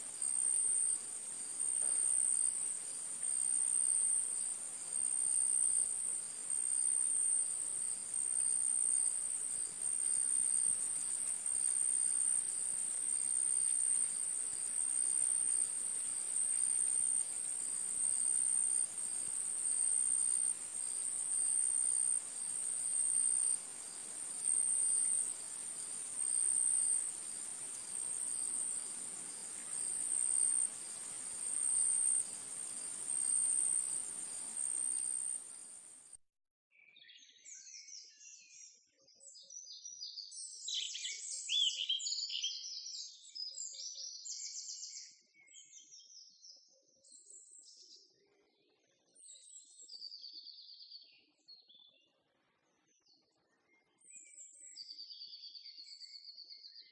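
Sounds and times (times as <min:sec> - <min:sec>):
insects trilling: 0:00.0 - 0:36.2.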